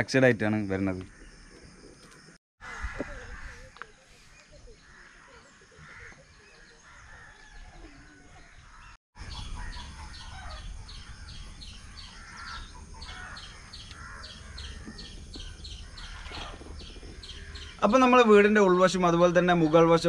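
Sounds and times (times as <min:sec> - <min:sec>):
soft bird chirps: 0:03.1 - 0:18.1.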